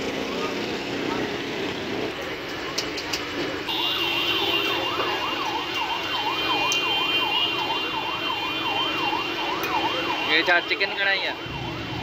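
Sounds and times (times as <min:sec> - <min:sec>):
electronic siren warbling: 0:04.0 - 0:12.0.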